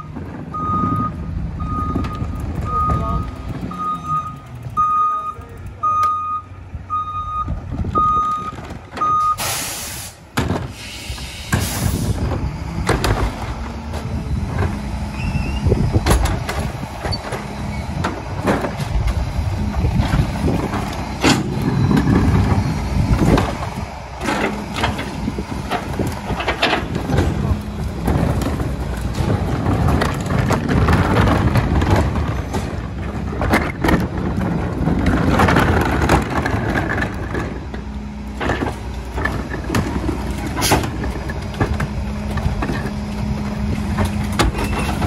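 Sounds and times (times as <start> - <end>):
reversing beeper: 0.0 - 9.9
diesel engine under load: 0.0 - 45.0
air hiss bursts: 9.4 - 12.1
plastic bins banging: 16.0 - 45.0.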